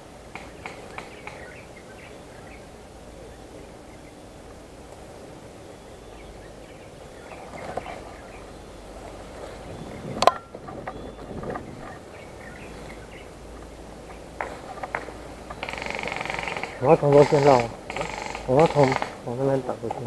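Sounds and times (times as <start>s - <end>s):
outdoor background noise: 0.0s - 20.0s
tall grass rustling: 0.0s - 20.0s
faint sharp clicks: 0.3s - 1.5s.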